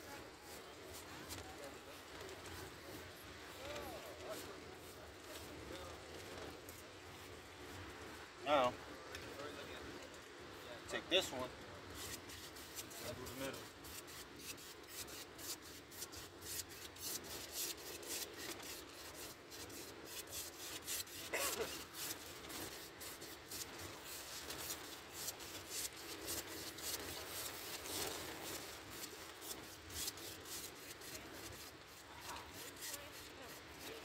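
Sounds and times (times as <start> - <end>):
palette knife scraping paint: 11.9 - 34.0.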